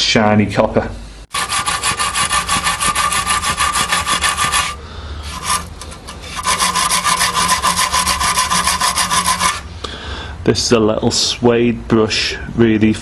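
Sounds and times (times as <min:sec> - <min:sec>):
brush scrubbing metal strip: 0:01.3 - 0:09.7.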